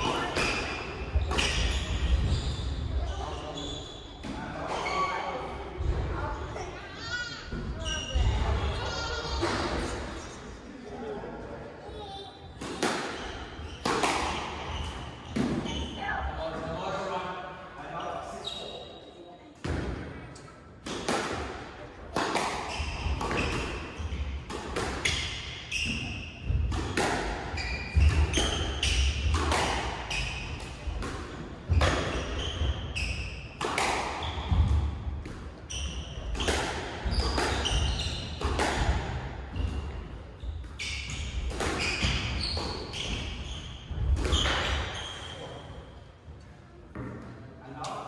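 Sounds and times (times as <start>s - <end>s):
squash ball hitting rackets and walls: 0.0s - 2.4s, 12.6s - 16.0s, 19.6s - 45.0s
shoe squeaks on wooden floor: 1.2s - 5.2s, 18.3s - 19.2s, 35.7s - 36.2s, 37.0s - 38.4s, 40.4s - 45.7s.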